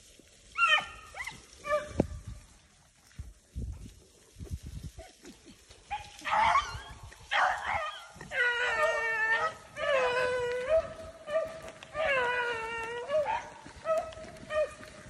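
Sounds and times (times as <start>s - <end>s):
hound baying: 5.9s - 15.0s.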